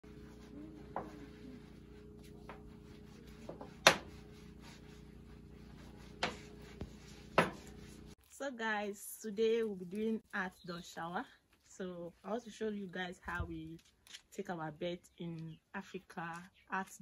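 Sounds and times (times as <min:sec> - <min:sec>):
faint steady hum: 0:00.0 - 0:08.2.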